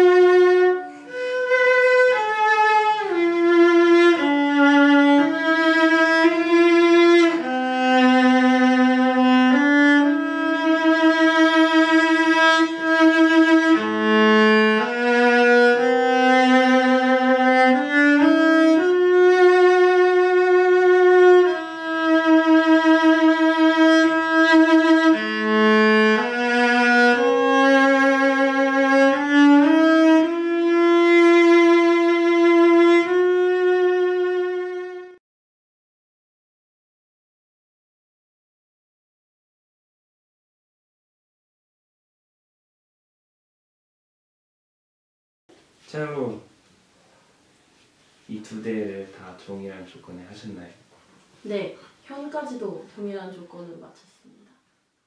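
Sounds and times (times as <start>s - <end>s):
bowed cello melody: 0.0s - 35.2s.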